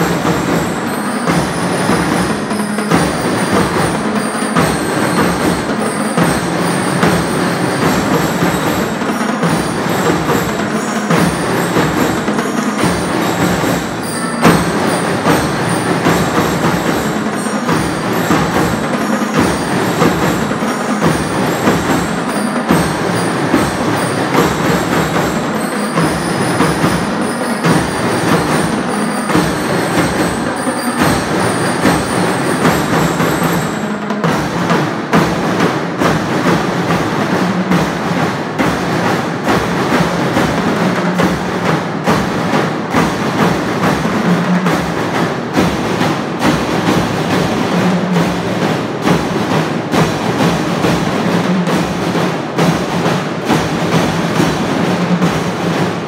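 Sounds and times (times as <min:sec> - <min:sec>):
high ringing notes: 0:00.0 - 0:34.1
marching band playing: 0:00.0 - 0:56.0
snare and bass drums: 0:00.0 - 0:56.0.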